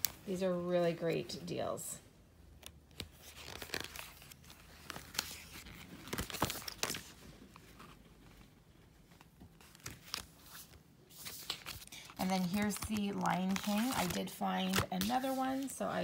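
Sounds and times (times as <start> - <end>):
paper sticker sheets rustling: 2.6 - 8.4, 9.0 - 16.0.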